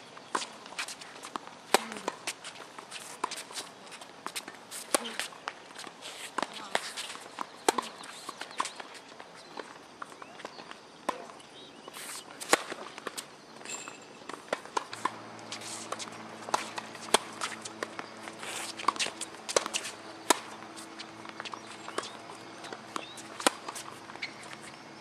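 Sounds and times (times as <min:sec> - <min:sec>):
shoes scuffing on court: 0:00.3 - 0:11.3, 0:11.9 - 0:24.8
rackets striking tennis ball: 0:12.4 - 0:24.6.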